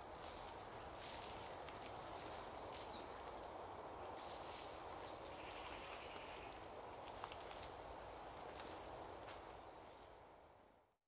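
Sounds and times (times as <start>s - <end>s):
footsteps through undergrowth: 0.0s - 3.4s, 4.1s - 6.2s
steady outdoor hiss: 0.0s - 11.0s
small songbirds singing: 1.9s - 10.0s.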